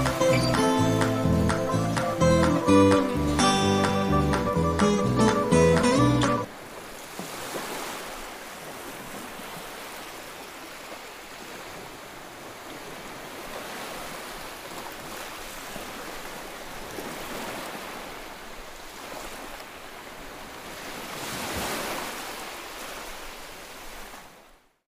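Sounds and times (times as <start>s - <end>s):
sea waves washing onto beach: 5.8s - 24.6s.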